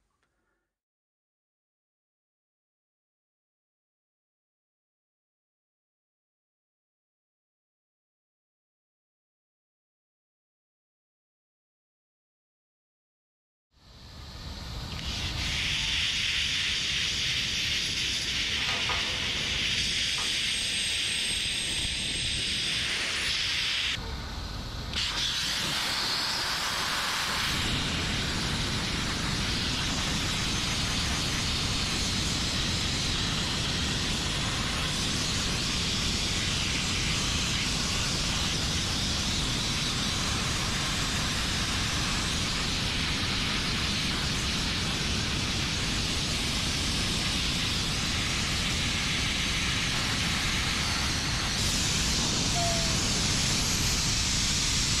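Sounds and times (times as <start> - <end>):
sandblasting hiss: 14.4 - 55.0.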